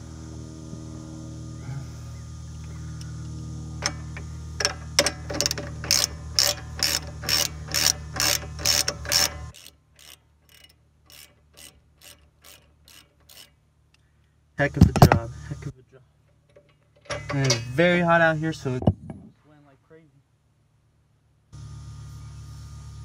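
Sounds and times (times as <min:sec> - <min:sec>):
steady low hum: 0:00.0 - 0:23.0
hand ratchet clicking: 0:03.8 - 0:14.0.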